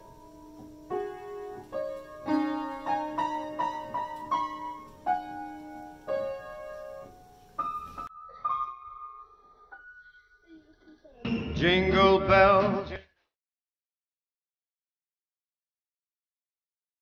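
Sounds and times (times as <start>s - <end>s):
piano melody with chords: 0.0s - 10.3s.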